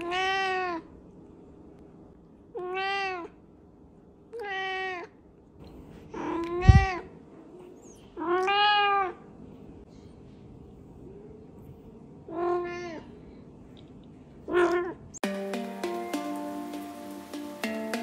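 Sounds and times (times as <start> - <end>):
cat meowing: 0.0 - 0.9, 2.6 - 3.4, 4.3 - 5.2, 6.1 - 7.1, 8.2 - 9.2, 12.3 - 13.2, 14.5 - 15.0.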